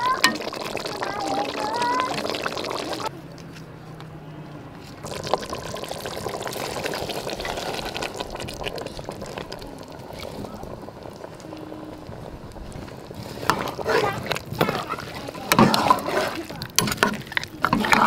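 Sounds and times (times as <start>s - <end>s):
beans pattering into liquid: 5.0s - 18.0s.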